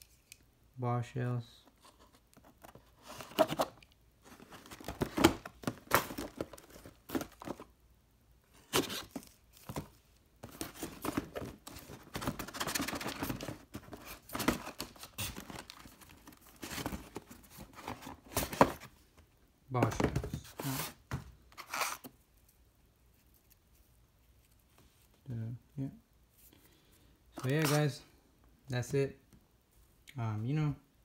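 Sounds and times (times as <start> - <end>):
cardboard packaging rustling: 1.8 - 7.7, 8.5 - 19.0, 27.4 - 28.0
boxes knocking: 4.5 - 7.6, 19.8 - 21.3.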